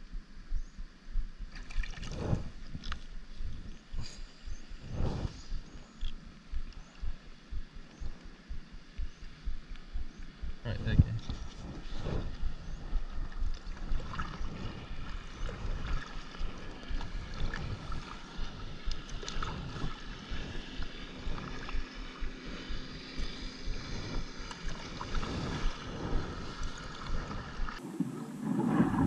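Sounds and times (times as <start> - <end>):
wind rumbling on microphone: 0.0 - 29.0
water splashing: 1.5 - 3.2, 10.8 - 29.0
paddle strokes in water: 1.6 - 6.3, 11.2 - 29.0.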